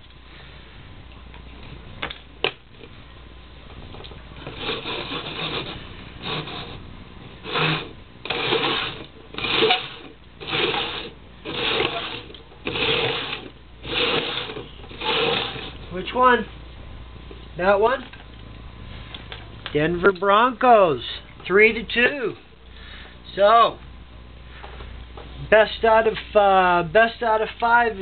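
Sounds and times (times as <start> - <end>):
plastic cups scraping on wooden floor: 4.4 - 6.8, 7.5 - 15.8.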